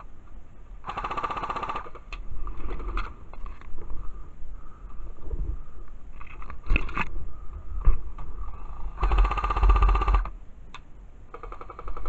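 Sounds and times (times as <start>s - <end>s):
airsoft gun firing bursts: 0.8s - 2.0s, 8.9s - 10.3s, 11.3s - 12.0s.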